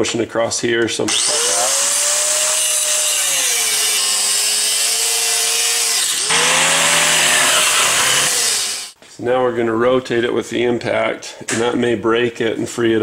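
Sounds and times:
angle grinder cutting metal: 1.1s - 9.0s.

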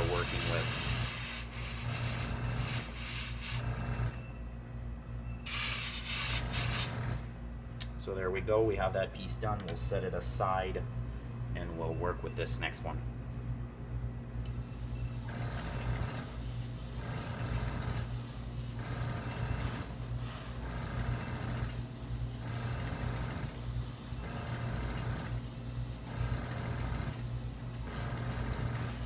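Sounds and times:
airbrush spraying bursts: 0.0s - 3.7s, 5.5s - 7.0s
steady low hum: 0.0s - 29.0s.

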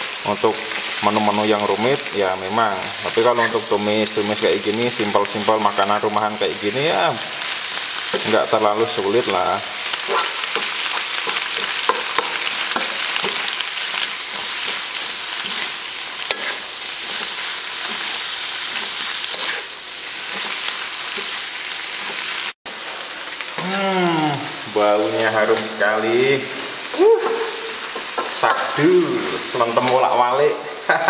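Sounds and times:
vegetables sizzling in a wok: 0.0s - 31.0s
spatula scraping the pan: 9.9s - 23.0s.

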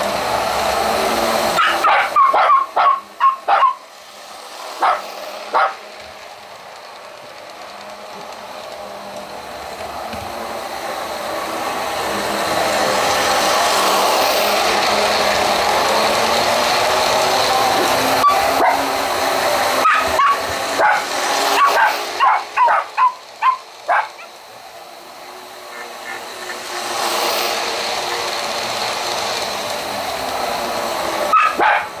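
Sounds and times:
toy train rumbling on track: 0.0s - 32.0s
small dog barking: 1.6s - 3.8s, 4.8s - 5.8s, 19.8s - 21.0s, 21.6s - 24.3s, 31.3s - 31.9s.

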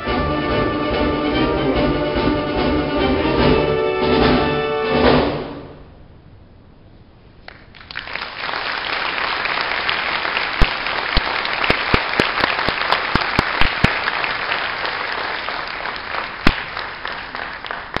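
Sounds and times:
loud sharp claps close by: 7.4s - 18.0s
audience applauding: 7.5s - 18.0s.

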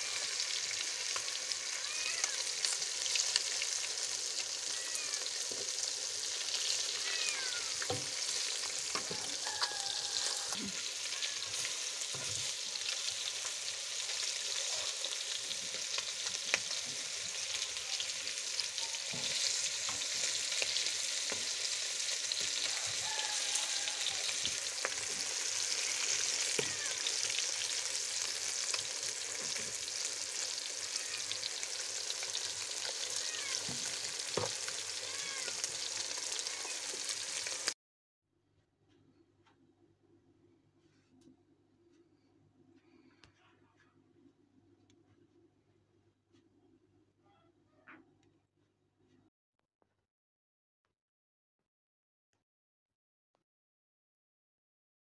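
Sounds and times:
fish sizzling in hot oil: 0.0s - 37.8s.

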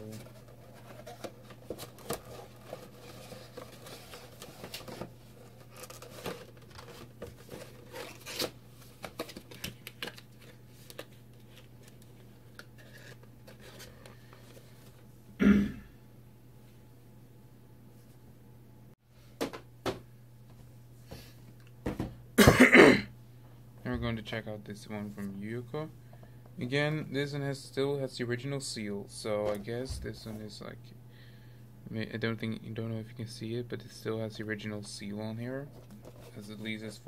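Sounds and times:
packaging rustling and crinkling: 0.0s - 13.9s
steady low hum: 0.0s - 37.0s.

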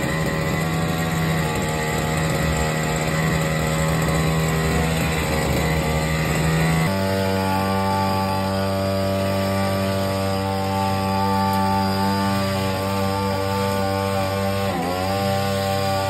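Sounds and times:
small petrol engine idling: 0.0s - 9.1s.

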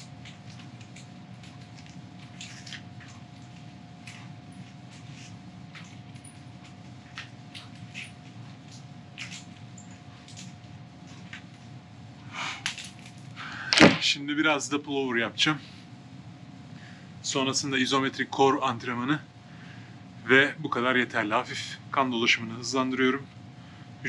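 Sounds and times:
room hum with constant tone: 0.0s - 24.0s
light clicks and squeaks: 0.2s - 11.4s.

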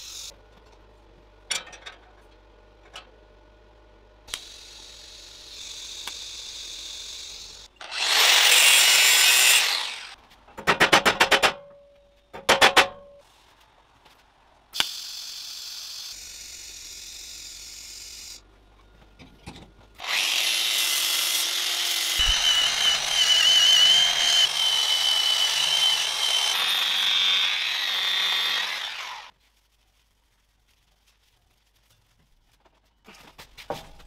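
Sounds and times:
welding arc hissing: 0.0s - 0.3s, 4.3s - 7.7s, 14.8s - 18.4s, 22.2s - 24.5s
angle grinder whining: 4.3s - 10.2s, 20.0s - 29.3s.

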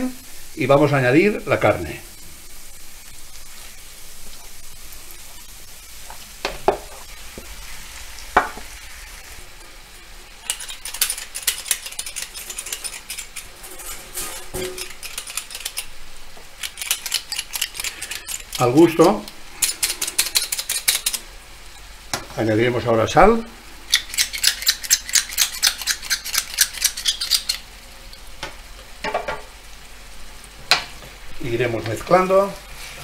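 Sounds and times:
meat sizzling in frying pan: 0.0s - 33.0s
wooden spoon knocking pan: 6.4s - 7.5s, 8.4s - 8.7s.

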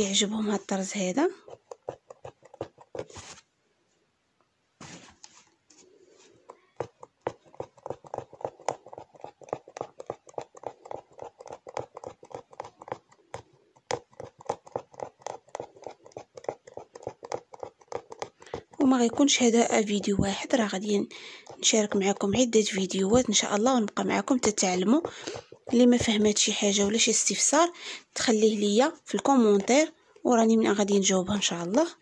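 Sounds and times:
needle punching through fabric: 6.4s - 27.7s.

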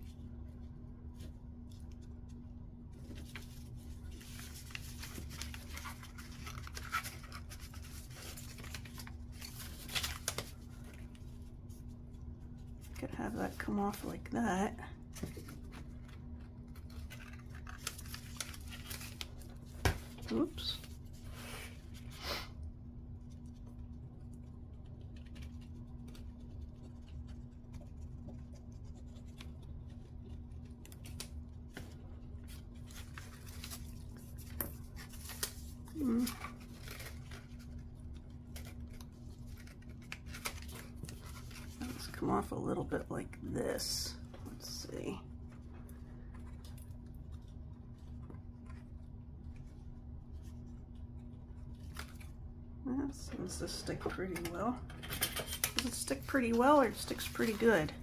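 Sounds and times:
steady low hum: 0.0s - 58.0s
hands handling paper: 0.6s - 14.1s, 15.1s - 22.1s, 23.2s - 42.2s, 55.5s - 58.0s.

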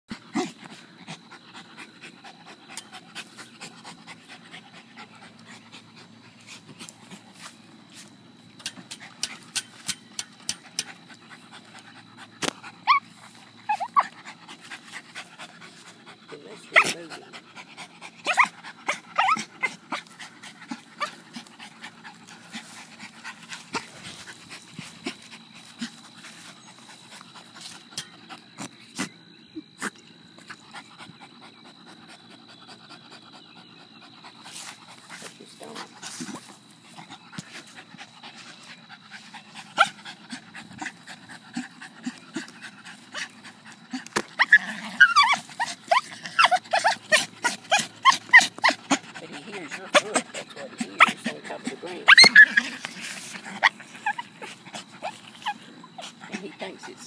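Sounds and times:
dog panting: 0.1s - 29.1s, 29.8s - 57.0s
dog whining: 12.8s - 14.2s, 19.2s - 19.8s, 43.9s - 49.0s, 51.9s - 56.2s.

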